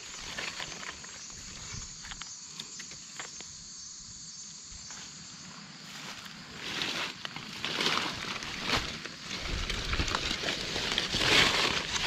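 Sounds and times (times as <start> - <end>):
crackles in leaf litter: 0.0 - 1.8, 5.9 - 12.0
insects chirring: 0.0 - 12.0.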